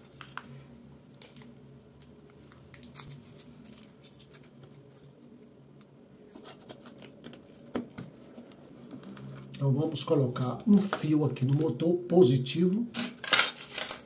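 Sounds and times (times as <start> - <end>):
tape rustling: 0.0 - 9.6
faint steady hum: 0.0 - 14.0.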